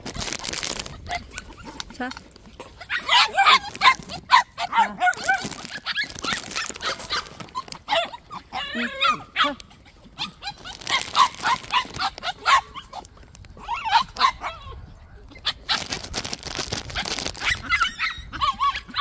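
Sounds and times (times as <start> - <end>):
puppies yapping: 0.8 - 1.8, 2.6 - 19.0
puppy whining: 0.9 - 1.9, 2.6 - 15.9, 17.0 - 19.0.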